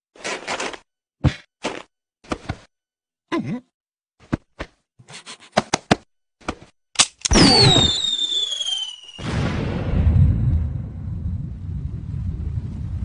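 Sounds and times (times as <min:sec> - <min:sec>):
whoosh with falling whistle: 0:07.3 - 0:09.3.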